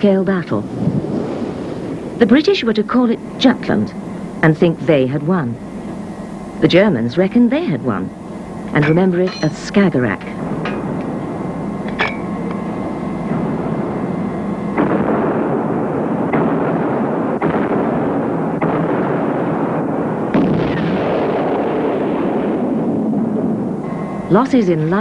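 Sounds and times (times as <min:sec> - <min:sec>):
continuous rumble: 0:00.0 - 0:25.0
shells bursting: 0:08.1 - 0:24.0
heavy guns firing: 0:14.8 - 0:23.6.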